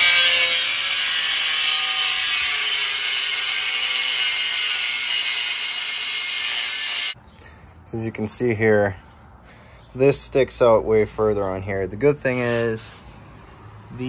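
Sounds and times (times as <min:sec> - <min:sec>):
angle grinder cutting steel: 0:00.0 - 0:07.2.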